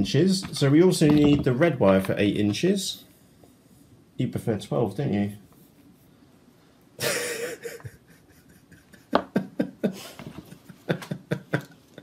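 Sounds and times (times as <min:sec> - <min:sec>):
person chuckling: 0:07.0 - 0:12.0.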